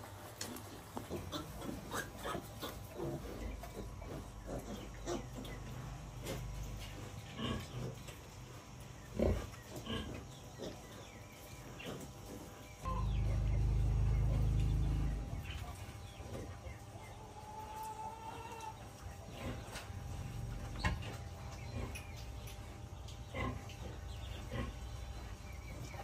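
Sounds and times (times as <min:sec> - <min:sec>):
pigs grunting: 0:01.0 - 0:16.6, 0:17.9 - 0:26.0
low rumble: 0:12.9 - 0:16.0.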